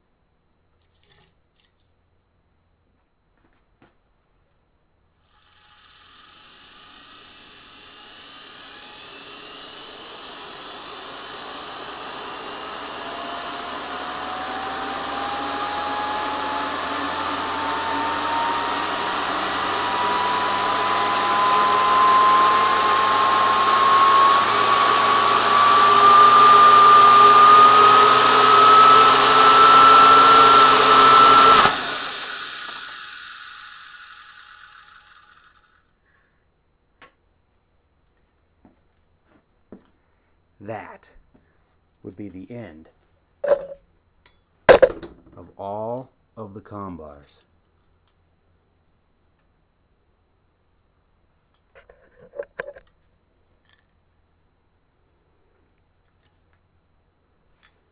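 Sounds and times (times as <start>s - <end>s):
electric motor whine: 5.2s - 35.9s
motor brushes arcing: 5.3s - 35.8s.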